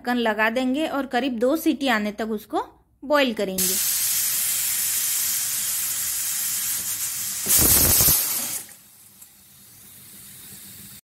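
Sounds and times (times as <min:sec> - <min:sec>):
pressure cooker steam whistling: 0:03.6 - 0:08.7.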